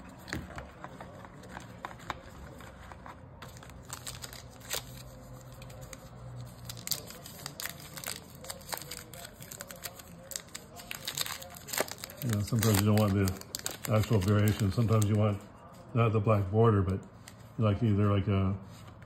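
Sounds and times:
wrapper tearing and crinkling: 3.6 - 15.2.

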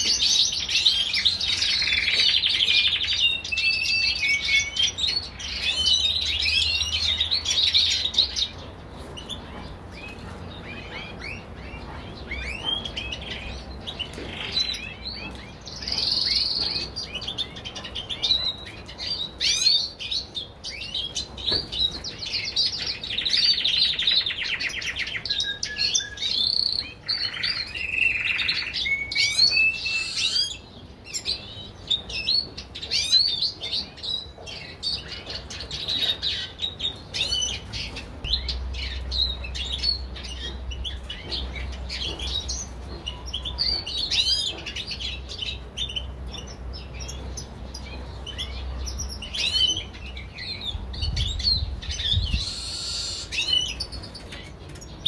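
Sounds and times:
songbirds chirping and singing: 0.0 - 55.0
bird fast trill: 51.6 - 54.0.

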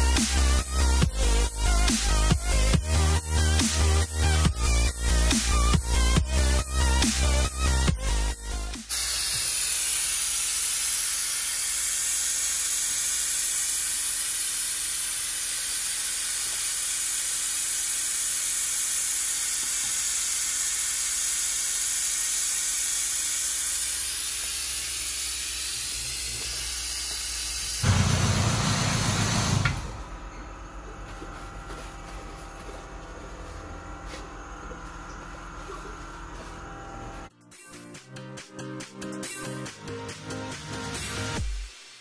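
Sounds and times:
loud hiss of spray: 8.8 - 29.6.

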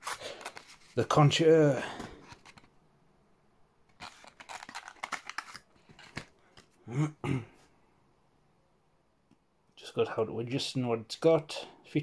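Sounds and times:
cardboard and paper rustling: 0.0 - 1.2, 1.8 - 2.7, 3.9 - 6.8.

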